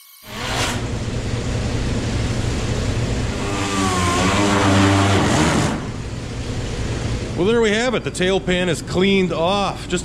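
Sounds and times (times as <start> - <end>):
air sander grinding metal: 3.3 - 6.0.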